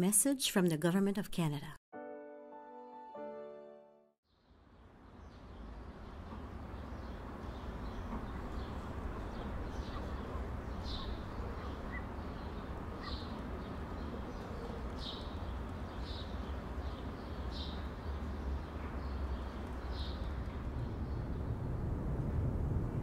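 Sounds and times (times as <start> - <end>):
small bird chirping: 6.9 - 18.4
wind buffeting microphone: 18.2 - 23.0.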